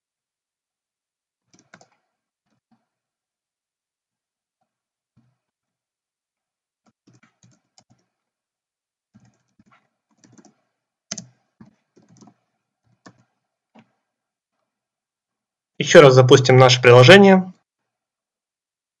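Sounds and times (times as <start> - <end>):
quiet keyboard typing: 1.5 - 3.0, 6.8 - 8.3, 9.1 - 14.1.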